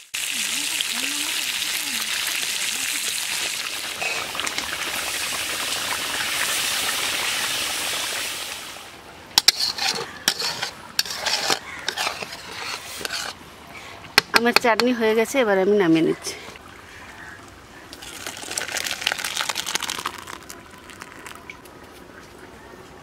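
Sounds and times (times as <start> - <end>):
food sizzling in a pan: 0.0 - 13.4
spatula scraping a pan: 4.0 - 4.7, 9.4 - 13.4.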